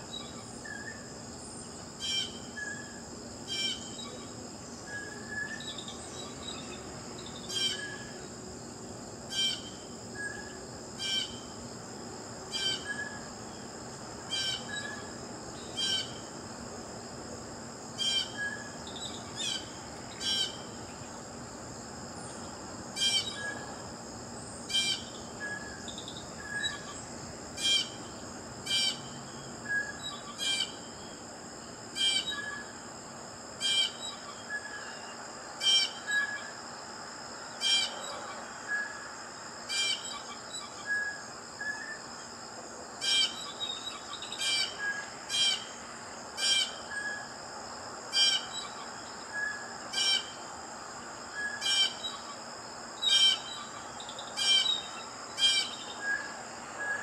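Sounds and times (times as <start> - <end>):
blue jay calling: 14.3 - 15.0, 15.8 - 16.2, 18.0 - 18.7, 19.4 - 20.7, 24.7 - 25.7, 28.7 - 30.9, 51.4 - 52.4, 53.0 - 56.3.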